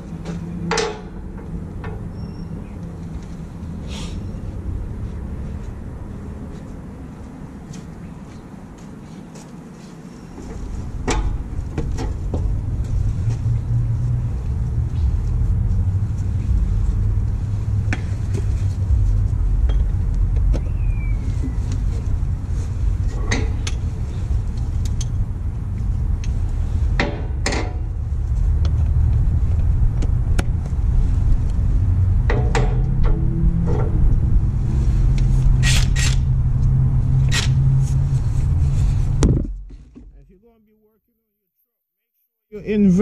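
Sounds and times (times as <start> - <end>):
sharp clicks and knocks: 32.2 - 34.2.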